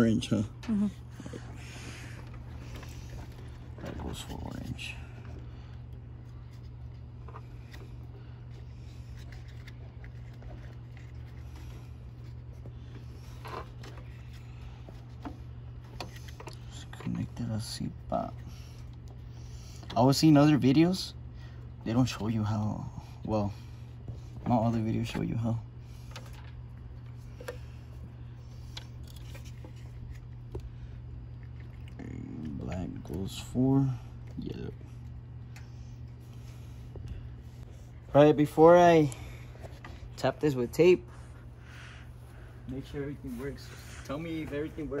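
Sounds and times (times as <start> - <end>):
steady low hum: 0.0 - 45.0
hands handling wiring: 23.9 - 31.8.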